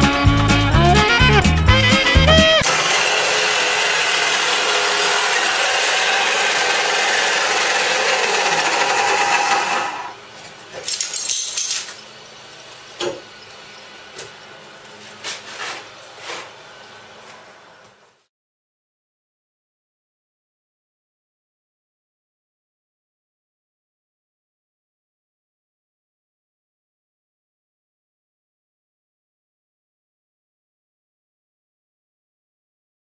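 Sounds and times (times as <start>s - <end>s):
wall chaser grinding brick: 2.3s - 12.2s, 14.6s - 17.4s.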